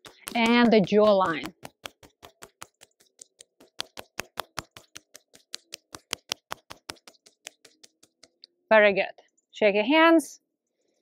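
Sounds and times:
fingertips tapping skin: 0:00.0 - 0:08.5.

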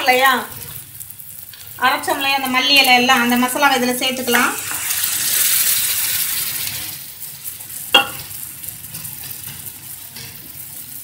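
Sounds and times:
hot oil sizzling in a pan: 0:00.0 - 0:11.0
metal clink on pan: 0:07.9 - 0:08.4.

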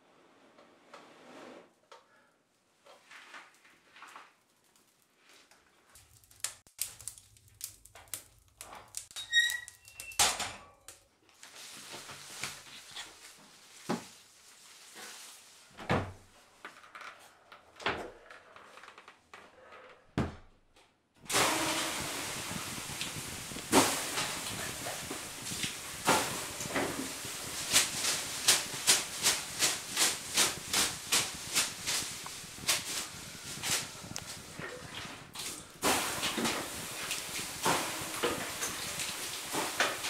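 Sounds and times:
tinder crackling: 0:03.6 - 0:10.2, 0:21.2 - 0:40.0
water steaming on hot stones: 0:05.8 - 0:10.0, 0:21.2 - 0:40.0
birch whisk slaps: 0:22.8 - 0:34.3.

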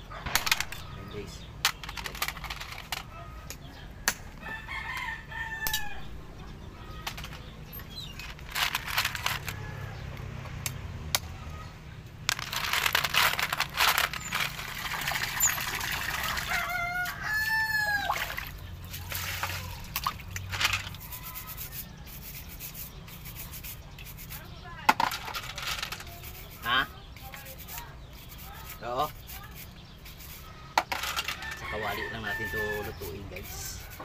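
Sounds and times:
shells clattering in metal bowl: 0:00.4 - 0:01.0, 0:01.6 - 0:03.1, 0:06.9 - 0:09.6, 0:12.2 - 0:21.7, 0:24.1 - 0:29.4, 0:30.1 - 0:34.0
rooster crowing: 0:04.3 - 0:06.2, 0:16.0 - 0:18.4, 0:31.4 - 0:33.7.

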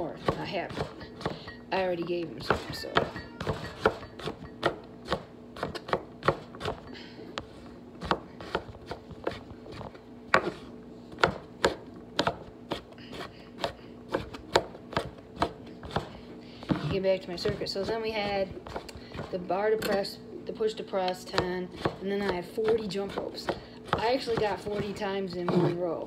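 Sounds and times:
knife chopping on wooden board: 0:02.4 - 0:06.8, 0:08.0 - 0:10.6, 0:11.2 - 0:19.9, 0:21.3 - 0:25.8.

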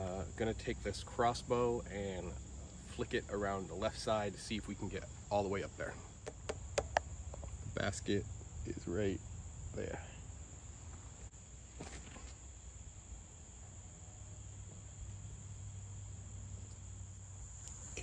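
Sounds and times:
high-pitched insect trill: 0:00.0 - 0:18.0
faint rustle: 0:09.9 - 0:12.6.

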